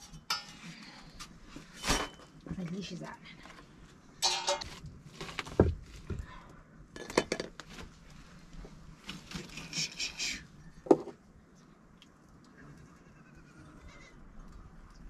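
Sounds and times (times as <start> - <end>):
metal pot and utensils clinking: 0.0 - 0.8, 4.2 - 4.8.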